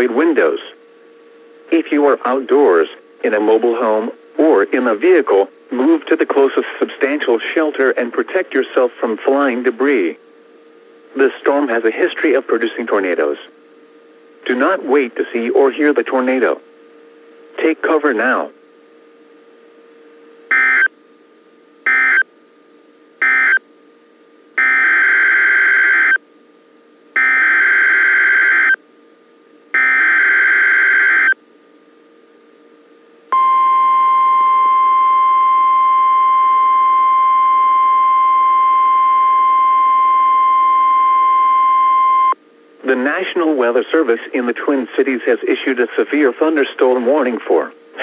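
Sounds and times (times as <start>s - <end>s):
steady warning alarm tone: 20.4s - 20.9s, 21.8s - 22.3s, 23.2s - 23.7s, 24.6s - 26.2s, 27.2s - 28.8s, 29.7s - 31.4s, 33.3s - 42.4s
screeching data tone bursts: 20.5s - 20.9s, 21.8s - 22.3s, 23.2s - 23.6s, 24.6s - 26.2s, 27.2s - 28.8s, 29.8s - 31.4s, 33.3s - 42.4s.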